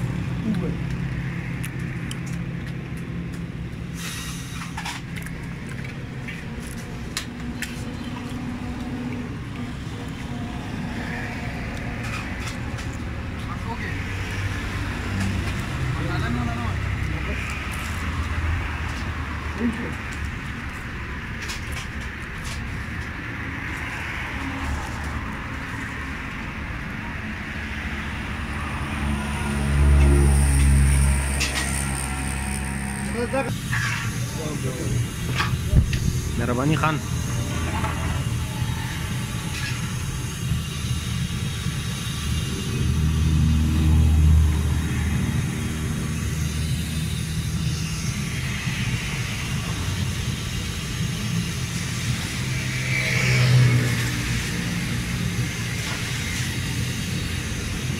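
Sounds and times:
engines and street traffic hum: 0:00.0 - 0:57.9
brief hiss: 0:04.0 - 0:04.9
steady hiss: 0:44.7 - 0:57.9.

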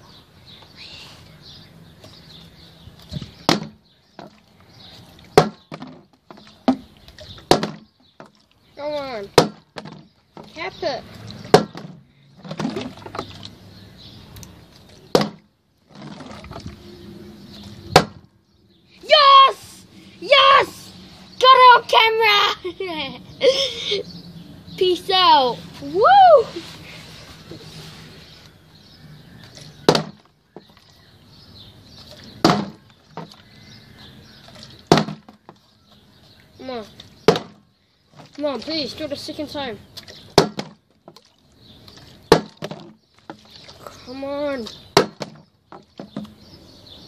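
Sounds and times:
plastic bottle knocking on wooden deck: 0:03.5 - 0:04.3, 0:05.4 - 0:06.9, 0:07.5 - 0:08.3, 0:11.5 - 0:13.2, 0:15.1 - 0:15.4, 0:29.9 - 0:30.7, 0:32.4 - 0:33.4, 0:34.9 - 0:35.6, 0:37.3 - 0:37.6, 0:40.4 - 0:41.2, 0:42.3 - 0:43.4, 0:45.0 - 0:46.4.

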